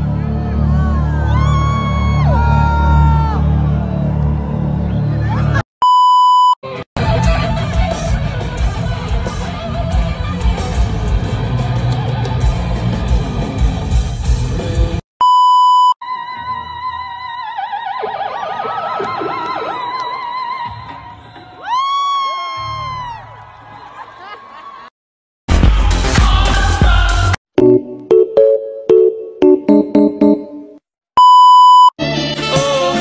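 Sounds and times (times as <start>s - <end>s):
censor bleep tone: 5.8s - 6.6s, 15.2s - 16.0s, 31.2s - 32.0s
live rock band: 7.0s - 15.0s.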